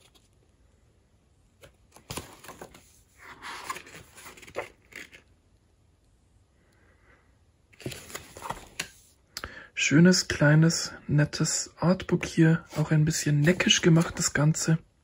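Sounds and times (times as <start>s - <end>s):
paper pages turning: 1.6s - 5.3s, 7.8s - 9.1s, 12.1s - 14.4s.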